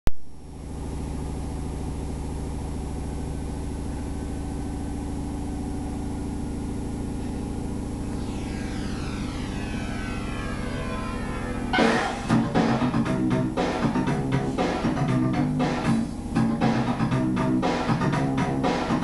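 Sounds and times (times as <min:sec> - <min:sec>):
low droning pulsing rumble: 0:00.3 - 0:18.6
falling sweeping tones: 0:07.3 - 0:16.2.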